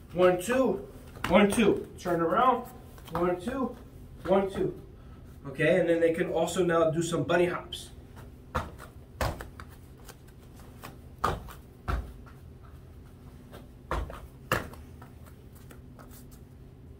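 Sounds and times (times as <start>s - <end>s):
dull thuds on padded mats: 8.1s - 9.8s, 10.8s - 12.7s, 13.4s - 15.1s.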